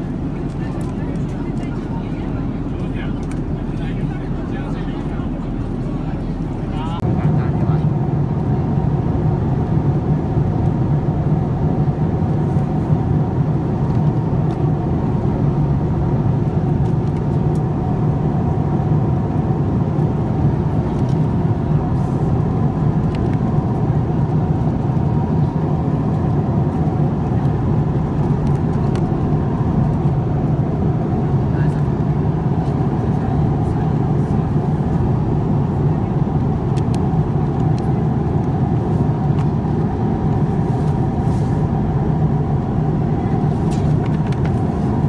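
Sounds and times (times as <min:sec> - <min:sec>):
airliner cabin drone: 0:00.0 - 0:45.0.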